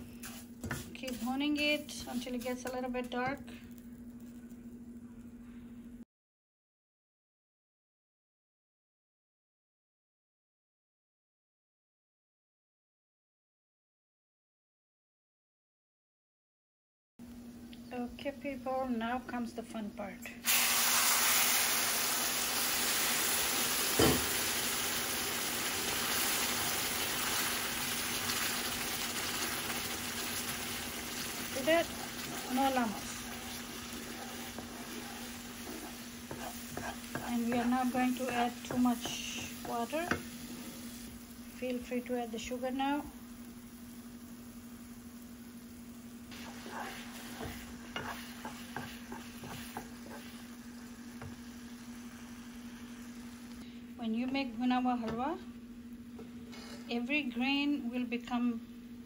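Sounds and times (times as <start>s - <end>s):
spatula strokes against pan: 0.0s - 2.7s, 27.8s - 42.0s, 46.3s - 53.3s
semolina sizzling in a wok: 0.0s - 5.2s, 20.4s - 57.8s
steady low hum: 0.0s - 6.0s, 29.5s - 59.0s.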